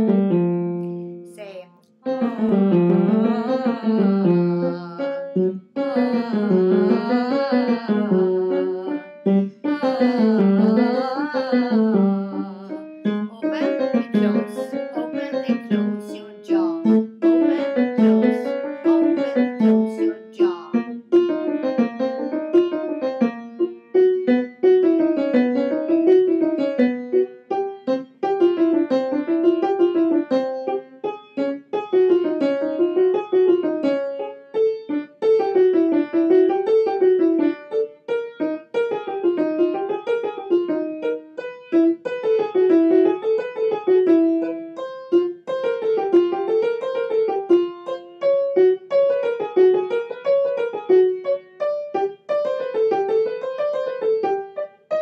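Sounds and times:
piano playing scales: 0.0 - 55.0
woman singing scales: 0.8 - 20.9.

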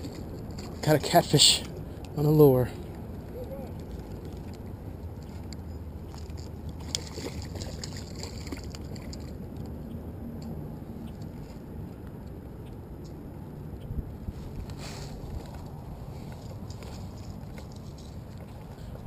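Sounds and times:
fish splashing in water: 5.2 - 9.6.

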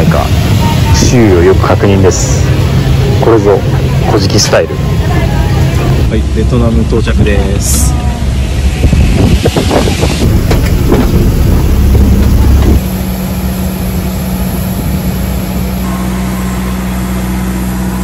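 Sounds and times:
airliner engine rumble and hum: 0.0 - 18.0
constant low tone: 7.8 - 18.0.

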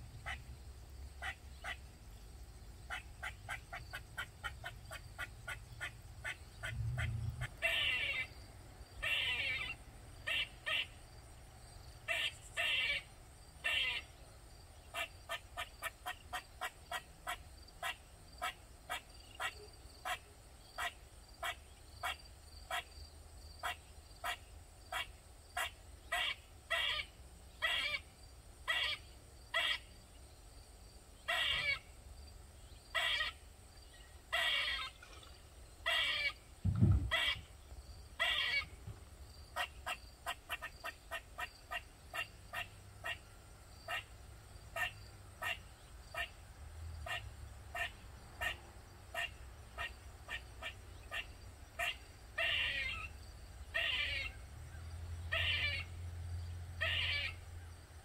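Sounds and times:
squirrel barking calls: 0.2 - 0.5, 1.2 - 2.0, 2.8 - 11.0, 12.0 - 14.2, 14.8 - 22.9, 23.6 - 29.9, 31.2 - 31.9, 32.9 - 33.5, 34.2 - 38.8, 39.5 - 43.3, 43.9 - 46.4, 47.0 - 54.5, 55.2 - 56.0, 56.8 - 57.4
low thump: 36.6 - 37.2.

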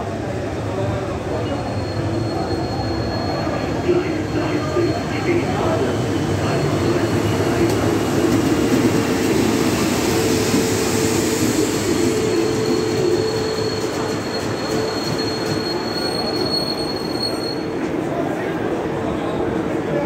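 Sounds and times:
high brake squeal: 1.3 - 7.8, 10.2 - 17.9
train wheels rumbling: 2.1 - 18.2.

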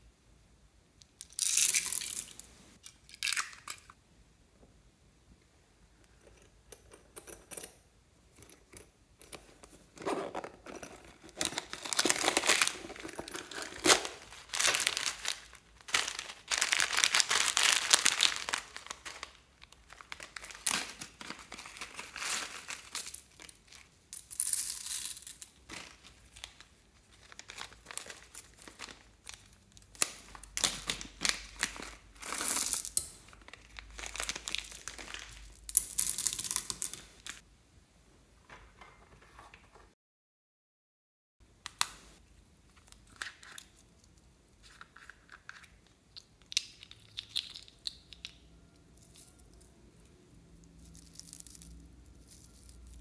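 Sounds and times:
plastic packets crinkling and tearing: 11.4 - 22.9, 25.7 - 35.6.

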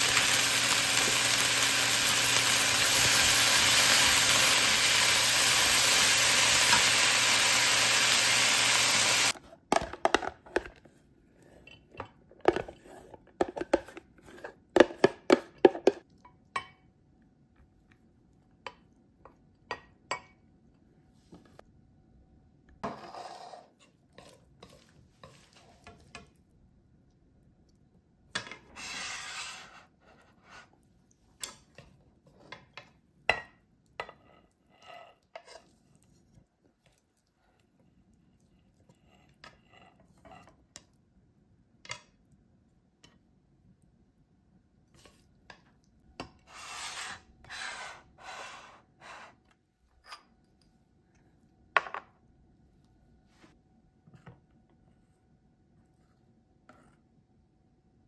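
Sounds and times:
onions sizzling in wok: 0.0 - 9.4.

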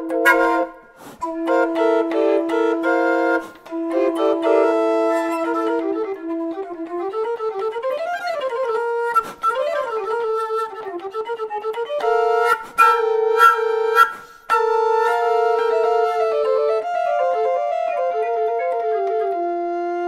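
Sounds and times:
small organ playing a melody: 0.0 - 7.9.

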